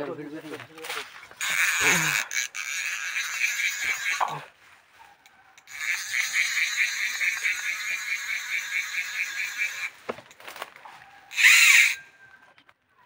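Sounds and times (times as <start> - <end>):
fishing reel whirring: 1.4 - 4.5, 5.2 - 10.0, 11.3 - 12.3.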